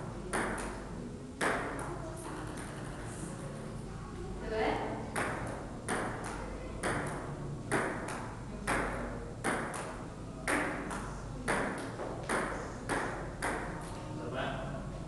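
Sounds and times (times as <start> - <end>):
ball bouncing on table: 0.3 - 0.8, 1.4 - 1.9, 5.1 - 13.9
table tennis ball hitting paddles: 0.3 - 0.8, 1.4 - 1.9, 5.1 - 13.9.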